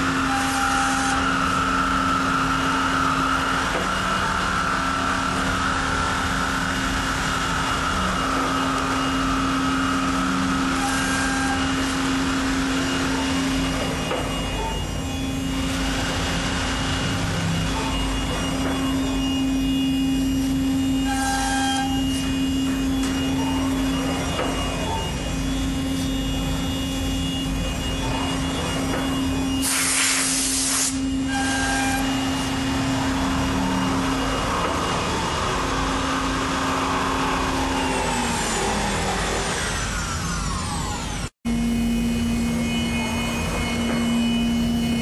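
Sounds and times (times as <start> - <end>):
cnc router machine hum: 0.0 - 45.0
hiss: 29.6 - 31.0.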